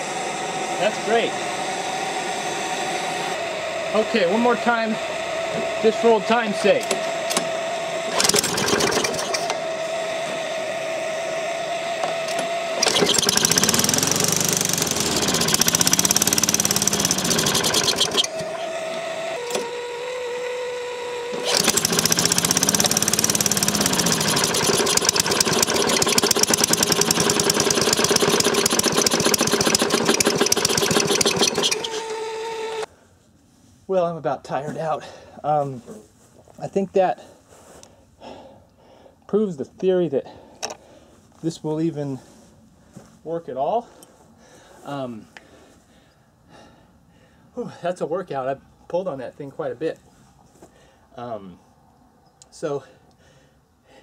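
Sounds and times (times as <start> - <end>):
lawn mower engine running rough: 0.0 - 32.9
steady whine: 0.0 - 32.9.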